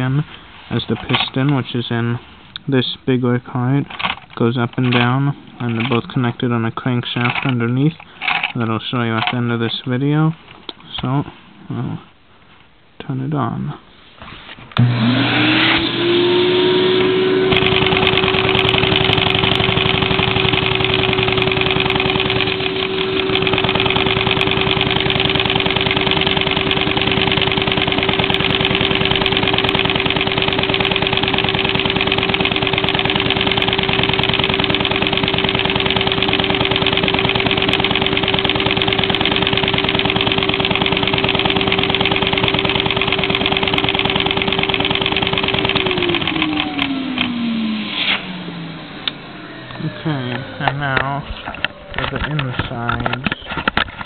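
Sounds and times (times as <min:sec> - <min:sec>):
small piston engine clattering: 0:07.1 - 0:09.4, 0:17.5 - 0:47.6
vacuum cleaner motor whine: 0:14.8 - 0:52.8.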